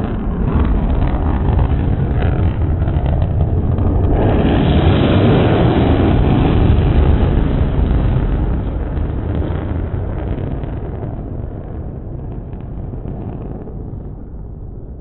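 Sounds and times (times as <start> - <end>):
jet deep rumble: 0.0 - 15.0.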